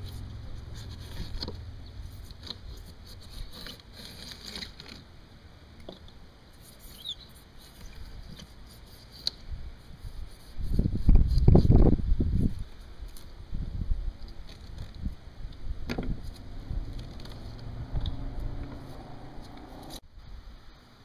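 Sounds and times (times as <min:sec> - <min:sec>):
hand tool scraping styrofoam and wood: 0:02.1 - 0:05.0.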